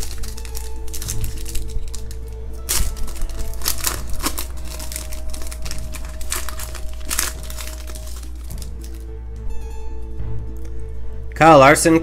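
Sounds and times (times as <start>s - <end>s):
foil wrapper crinkling and tearing: 0.0s - 9.1s.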